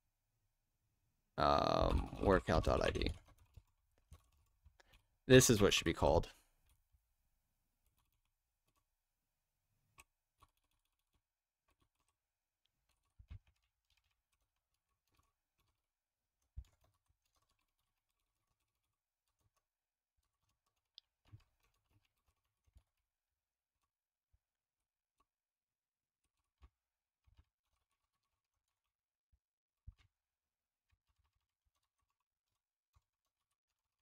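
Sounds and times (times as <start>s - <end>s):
keyboard typing: 10.0s - 12.2s.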